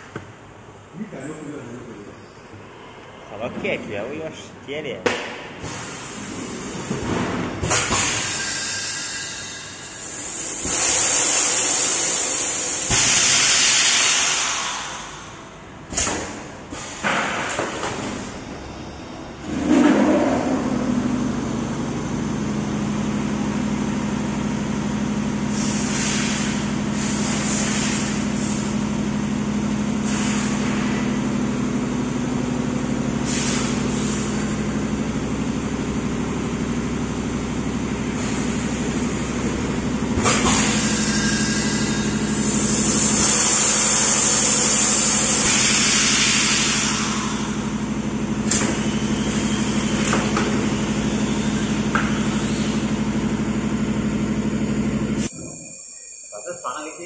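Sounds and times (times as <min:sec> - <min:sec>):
compressed air hissing: 0:07.9 - 0:15.3, 0:25.5 - 0:28.8, 0:30.0 - 0:30.9, 0:33.2 - 0:34.4, 0:40.4 - 0:47.7
machine humming: 0:17.7 - 0:25.6, 0:47.3 - 0:57.0.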